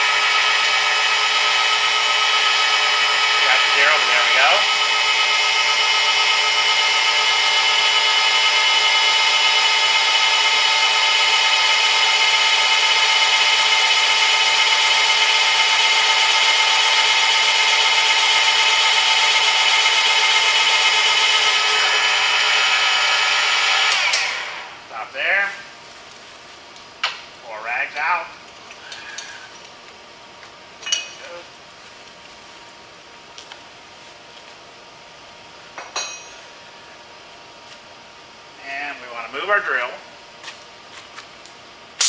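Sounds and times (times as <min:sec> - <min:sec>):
drill motor whining: 0:00.0 - 0:24.7.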